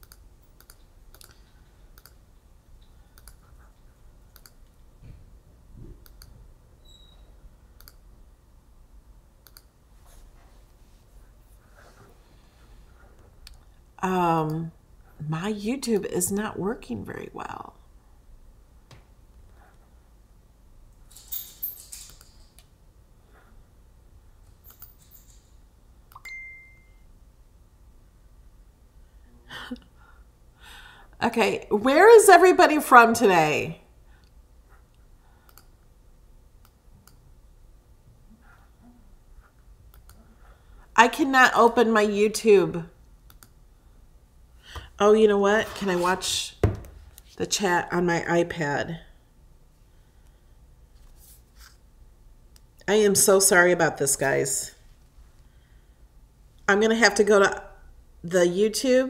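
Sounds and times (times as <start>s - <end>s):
computer mouse clicking: 0.0s - 2.2s, 3.1s - 3.6s, 4.3s - 4.7s, 6.0s - 6.4s, 7.8s - 8.0s, 9.4s - 9.7s, 35.5s - 35.7s, 39.9s - 40.2s, 43.3s - 43.6s
short steady beep: 26.2s - 27.0s.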